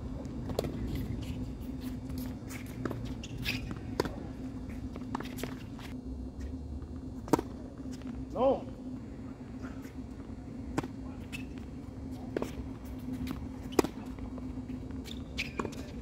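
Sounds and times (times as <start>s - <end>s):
steady low hum: 0.0s - 16.0s
shoe scuffs on hard court: 0.4s - 6.5s.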